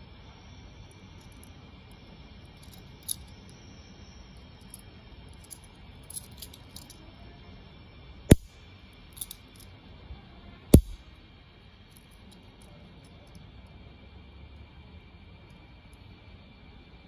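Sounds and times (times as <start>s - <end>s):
cap gun hammer snapping: 8.3s - 8.5s, 10.8s - 11.0s.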